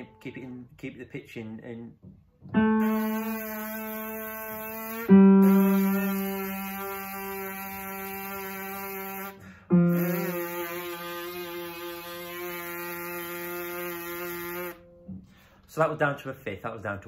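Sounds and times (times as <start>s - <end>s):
brass player's lip buzz: 2.8s - 14.9s.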